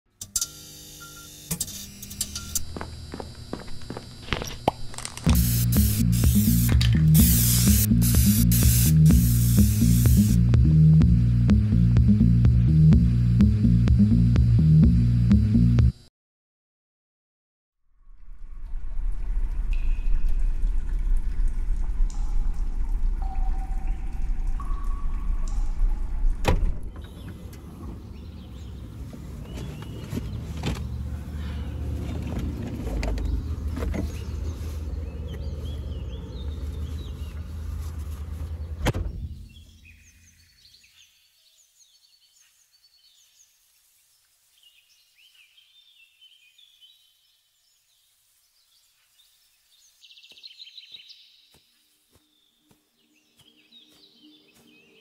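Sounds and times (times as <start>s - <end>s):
low rumble: 17.9s - 29.1s, 30.9s - 39.6s
songbirds chirping: 26.9s - 55.0s.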